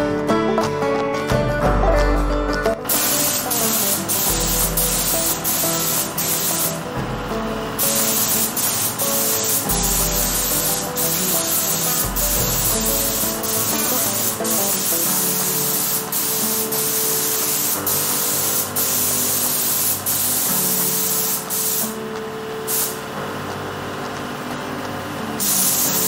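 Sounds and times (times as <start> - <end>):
background music: 0.0 - 26.0
spray gun hissing: 2.9 - 6.9, 7.7 - 22.0, 22.7 - 23.1, 25.4 - 26.0.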